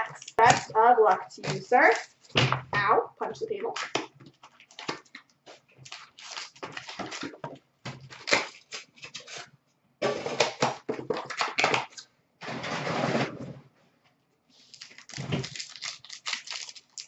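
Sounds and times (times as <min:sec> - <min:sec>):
wrappers crinkling: 0:00.0 - 0:02.4, 0:03.8 - 0:07.4, 0:08.0 - 0:09.5, 0:14.6 - 0:17.0
wrapper tearing: 0:01.8 - 0:02.4, 0:03.8 - 0:07.4, 0:08.0 - 0:09.5, 0:14.6 - 0:17.0.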